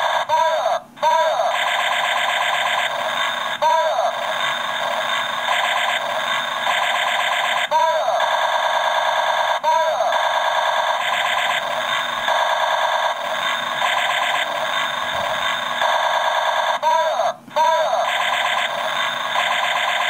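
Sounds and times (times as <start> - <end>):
electronic warble of rapid pulses: 0.0 - 20.0
falling laser zaps: 1.3 - 16.9.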